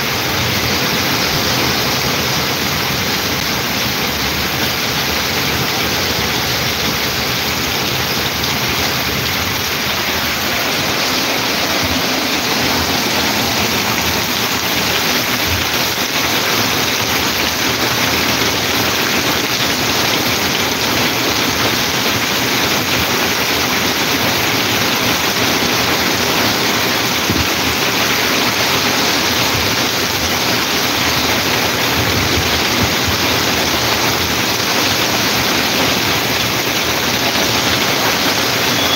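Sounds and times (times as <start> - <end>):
heavy rain pouring: 0.0 - 38.9
rainwater running on street: 0.0 - 38.9.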